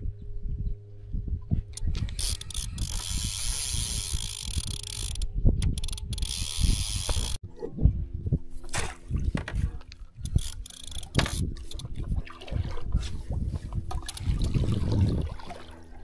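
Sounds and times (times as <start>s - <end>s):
fishing reel whirring and clicking: 1.8s - 7.4s, 10.2s - 12.0s, 13.9s - 14.4s.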